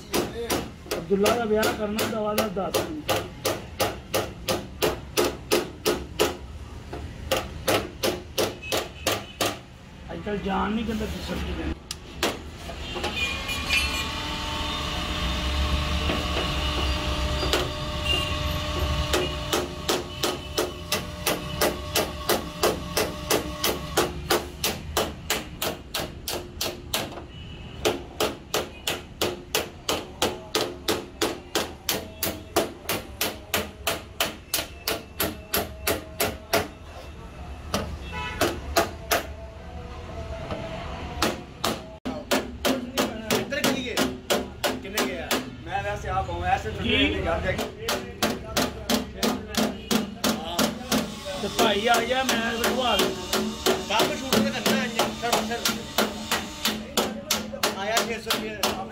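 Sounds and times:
hammer tapping sheet metal: 0:00.0 - 0:09.6, 0:19.0 - 0:36.8, 0:41.2 - 0:45.6, 0:47.6 - 0:58.9.

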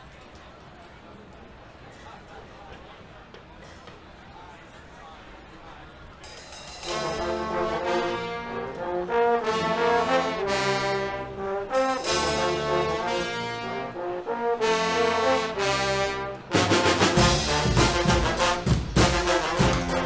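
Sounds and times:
brass band playing chords: 0:06.8 - 0:20.0.

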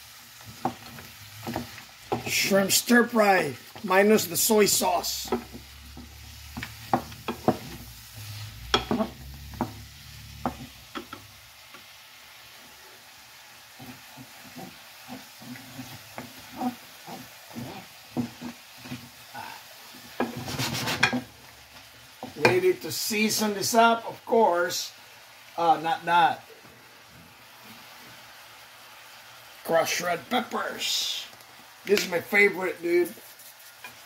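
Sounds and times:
food sizzling in oil: 0:00.0 - 0:34.0
spatula scraping a pan: 0:00.3 - 0:03.0, 0:03.6 - 0:11.2, 0:13.6 - 0:22.6, 0:33.0 - 0:34.0.

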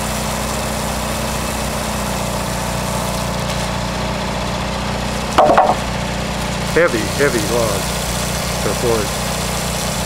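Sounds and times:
water spray hissing on wood: 0:00.0 - 0:03.8, 0:06.6 - 0:10.0
pressure washer engine hum: 0:00.0 - 0:10.0.

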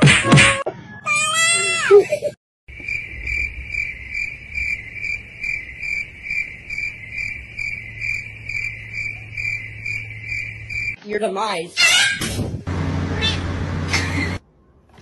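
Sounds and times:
cricket chirping: 0:02.7 - 0:11.0.

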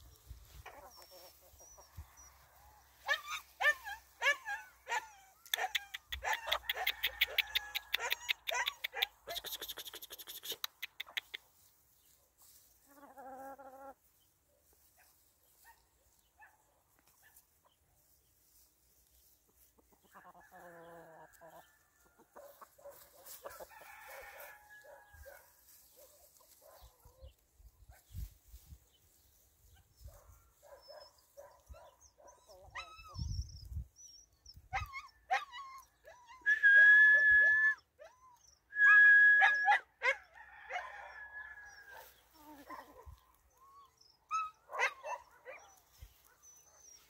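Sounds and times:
chicken call: 0:05.5 - 0:11.4
hens clucking: 0:05.6 - 0:11.5, 0:19.5 - 0:20.9
rooster crowing: 0:23.5 - 0:25.1, 0:40.3 - 0:42.1.

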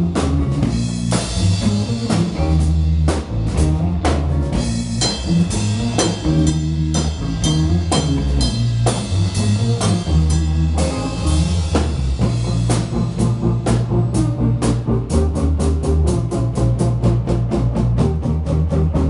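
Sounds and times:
drum kit steady beat: 0:00.0 - 0:19.0
live band playing: 0:00.0 - 0:19.0.

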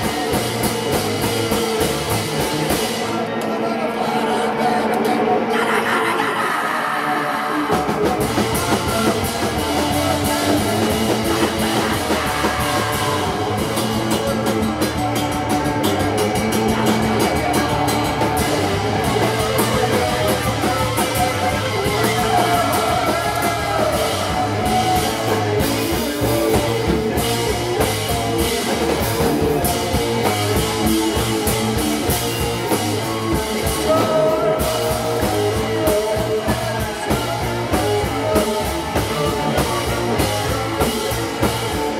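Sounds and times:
live rock band playing: 0:00.0 - 0:41.9.

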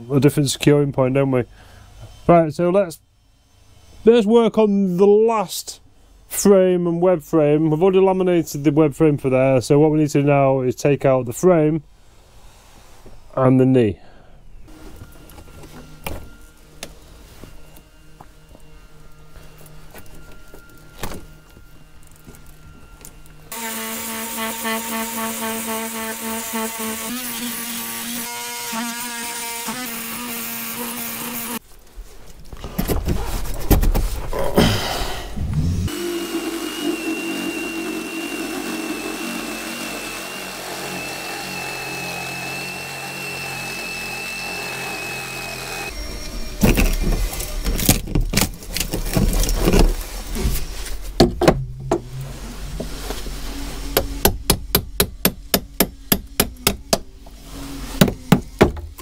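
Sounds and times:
power tool cutting wood: 0:17.6 - 0:31.6, 0:35.5 - 0:51.0, 0:51.8 - 0:59.0
hammer striking a chisel: 0:54.0 - 0:57.1.

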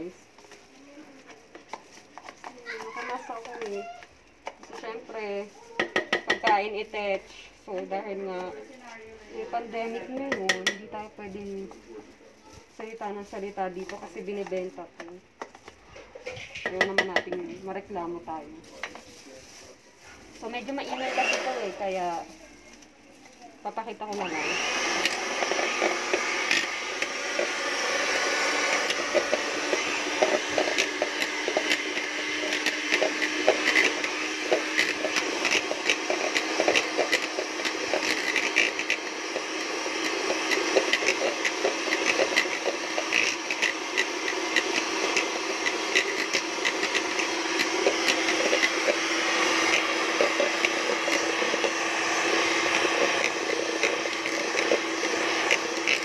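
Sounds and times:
electric hand mixer motor hum: 0:20.7 - 0:22.0, 0:24.1 - 0:56.0.

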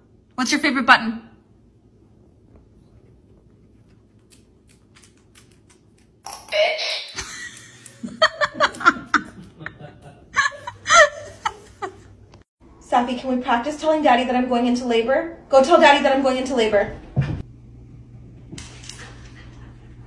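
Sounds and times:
dog claws clicking on hard floor: 0:03.8 - 0:06.5
person laughing: 0:07.2 - 0:12.2.

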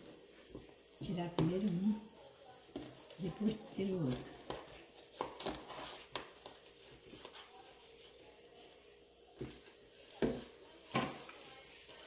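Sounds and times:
insects high-pitched whine: 0:00.0 - 0:12.0.

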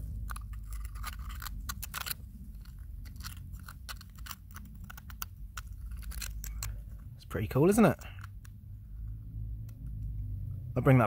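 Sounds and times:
gritty crunches: 0:00.0 - 0:08.6.

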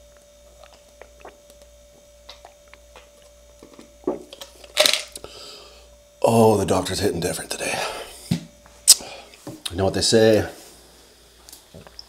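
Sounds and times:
man gulping soda: 0:00.0 - 0:03.4.

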